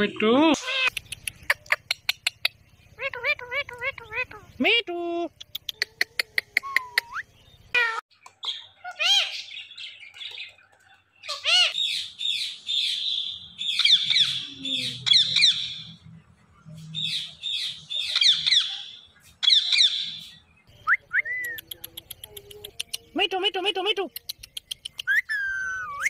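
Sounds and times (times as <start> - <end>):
parakeets screeching: 11.2 - 16.0.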